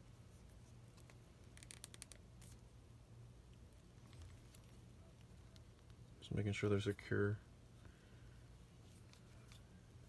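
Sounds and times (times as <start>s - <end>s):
light rustles of hands: 8.6s - 9.8s.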